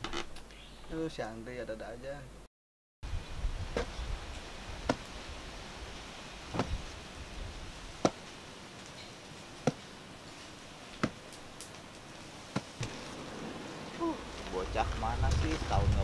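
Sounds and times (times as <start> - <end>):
hoe chopping into soil: 4.8 - 5.1, 6.5 - 6.8, 8.0 - 8.2, 9.6 - 9.9, 11.0 - 11.2, 12.5 - 13.0.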